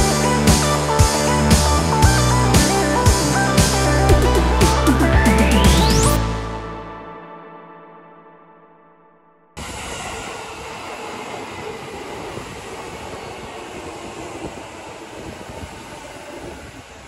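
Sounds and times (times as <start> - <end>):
train wheels rumbling on rails: 9.6 - 17.0.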